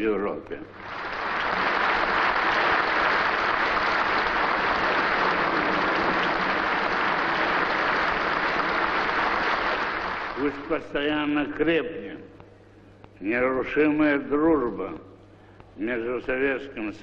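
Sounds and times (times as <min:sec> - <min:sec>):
audience applauding: 0:00.7 - 0:10.8.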